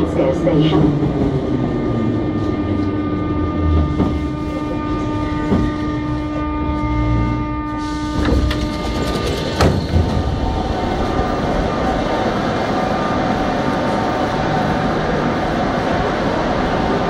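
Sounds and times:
electric whine of train: 0:00.0 - 0:17.0
running train rumbling: 0:00.0 - 0:17.0.

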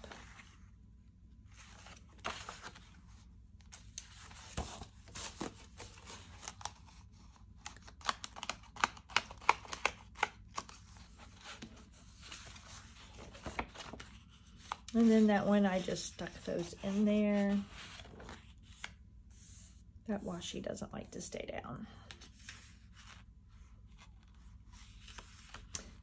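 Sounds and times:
paper pages rustling: 0:01.5 - 0:03.1, 0:07.7 - 0:19.6.

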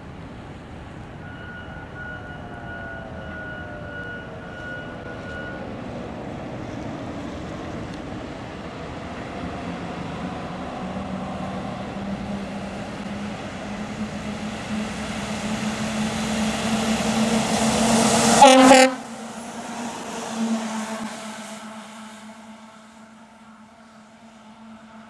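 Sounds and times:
fire engine approaching: 0:00.0 - 0:25.0
steady high tone: 0:01.2 - 0:06.2.

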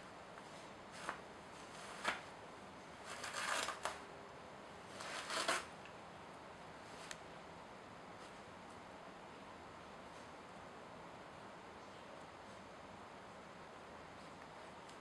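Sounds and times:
toilet paper tearing: 0:03.0 - 0:04.0, 0:04.9 - 0:05.7.

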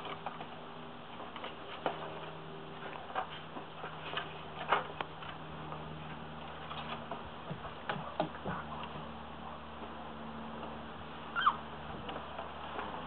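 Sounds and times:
faint low hum: 0:00.0 - 0:13.0
puppy paws tapping wooden board: 0:02.9 - 0:09.1.

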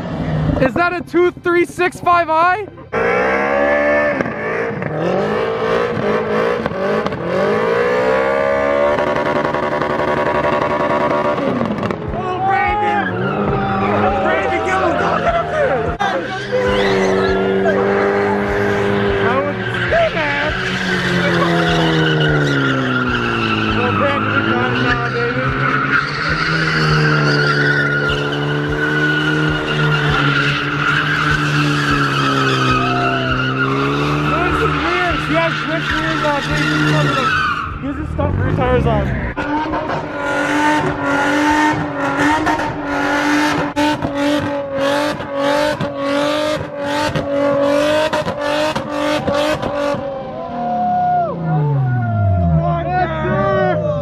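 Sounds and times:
vehicle engine revving: 0:02.8 - 0:54.0
tyres squealing: 0:12.2 - 0:43.7.

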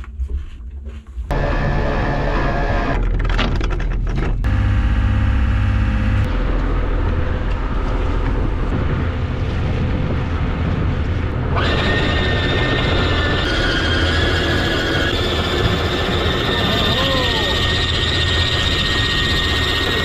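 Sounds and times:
high whine: 0:01.3 - 0:03.0, 0:04.4 - 0:20.0
motor running: 0:01.3 - 0:03.0, 0:04.4 - 0:06.3.

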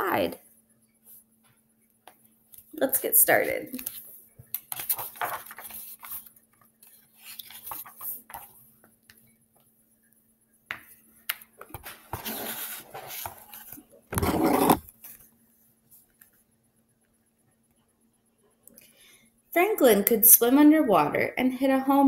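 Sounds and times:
book pages rustling: 0:03.7 - 0:08.6, 0:11.6 - 0:15.3.

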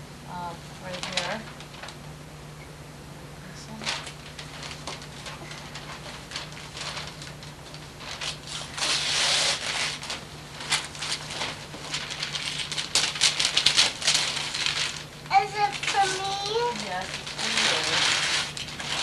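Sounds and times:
wrapping paper crackling: 0:00.8 - 0:02.1, 0:03.7 - 0:19.0
paper ripping: 0:03.8 - 0:19.0.

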